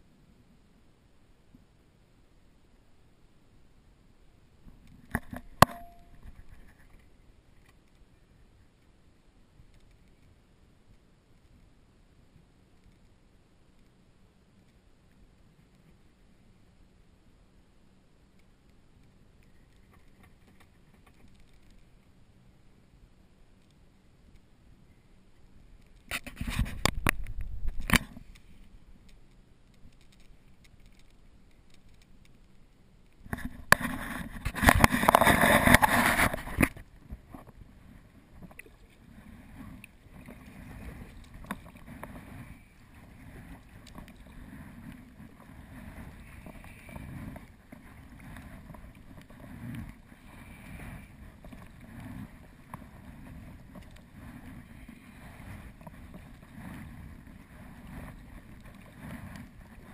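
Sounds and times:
water sloshing around kayak: 33.3 - 59.9.

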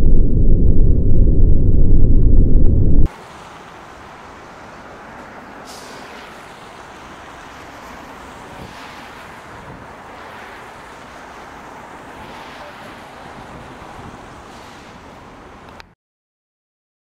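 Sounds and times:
outdoor ambient rushing noise: 0.0 - 15.9
brief hiss: 5.6 - 6.3.

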